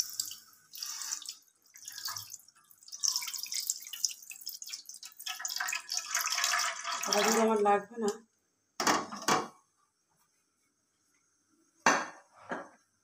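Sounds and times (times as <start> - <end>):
milk pouring and splashing: 0.0 - 7.6.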